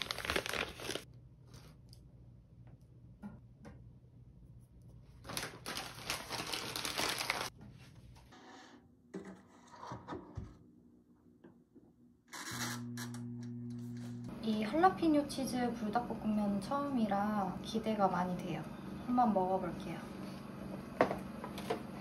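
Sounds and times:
paper bag crinkling: 0:00.0 - 0:01.7, 0:05.2 - 0:07.5.

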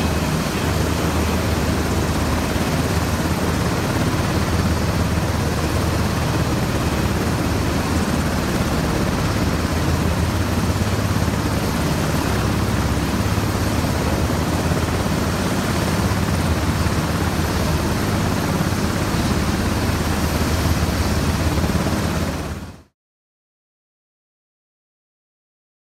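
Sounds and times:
helicopter rotor and turbine drone: 0:00.0 - 0:23.0.

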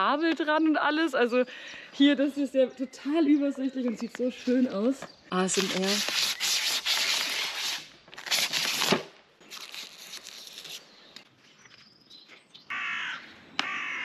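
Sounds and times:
plastic film peeling: 0:05.5 - 0:10.8.

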